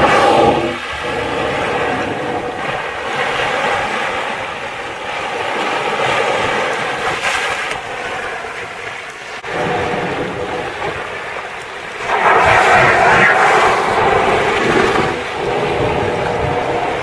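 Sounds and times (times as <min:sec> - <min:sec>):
wind and water rushing: 0:00.0 - 0:17.0
whale blow exhale: 0:12.0 - 0:16.6.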